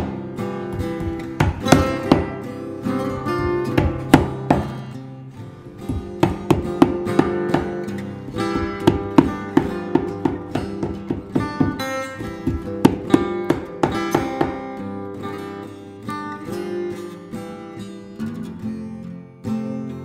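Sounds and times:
acoustic guitar music: 0.0s - 20.0s.

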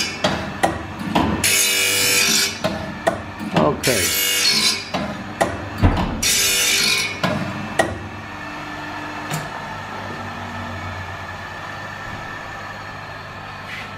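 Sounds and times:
heavy thump of handle: 5.8s - 6.2s.

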